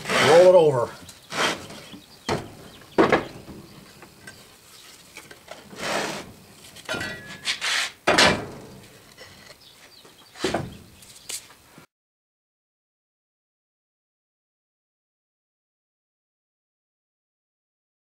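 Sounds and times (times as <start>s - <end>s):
scraping rubs: 0.0s - 2.0s, 4.7s - 8.0s
wooden board clunks: 1.4s - 4.4s, 6.9s - 9.0s, 10.4s - 10.9s.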